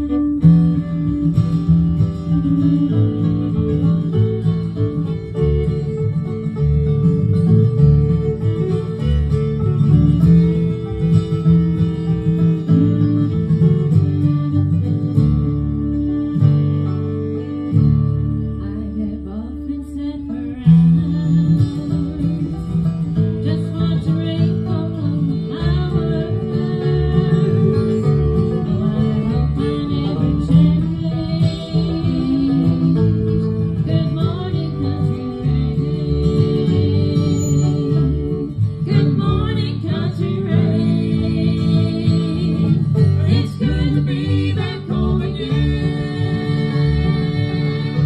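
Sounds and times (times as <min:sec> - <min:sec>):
bluegrass band playing: 0:00.0 - 0:48.0
person singing: 0:23.4 - 0:48.0.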